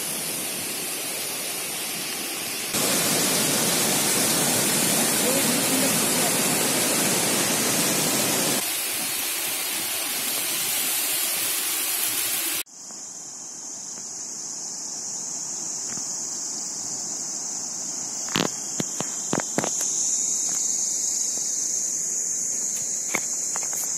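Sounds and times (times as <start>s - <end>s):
stream rushing over rocks: 0.0s - 12.6s.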